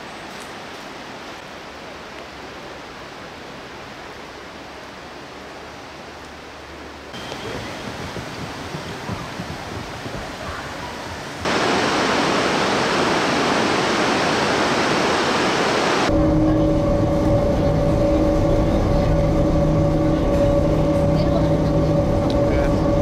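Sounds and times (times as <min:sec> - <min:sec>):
river water and waterfall: 0:00.0 - 0:16.1
rush of air and water: 0:00.6 - 0:16.2
boat engines rumbling: 0:06.4 - 0:12.7, 0:15.9 - 0:23.0.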